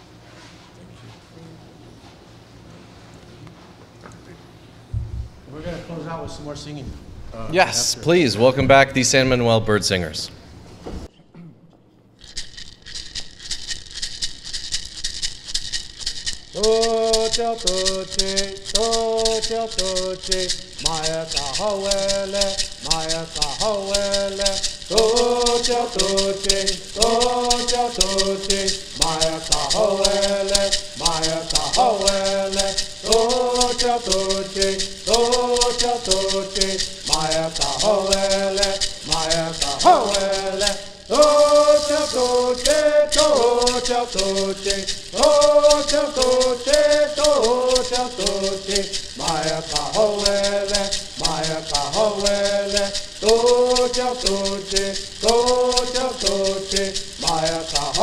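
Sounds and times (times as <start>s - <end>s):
gourd rattle shaken: 12.2s - 58.0s
men singing in unison: 16.6s - 58.0s.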